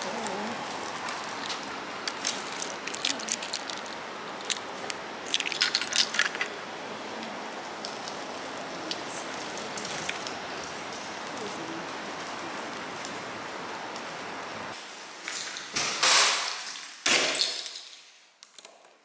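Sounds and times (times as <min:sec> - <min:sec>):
paper bags crackling and rustling: 0:00.0 - 0:06.7
steady hiss: 0:00.0 - 0:17.0.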